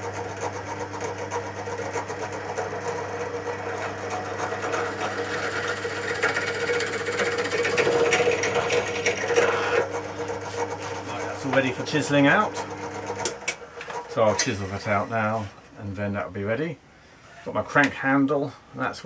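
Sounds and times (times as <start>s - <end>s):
pillar drill drilling into wood: 3.4s - 10.0s.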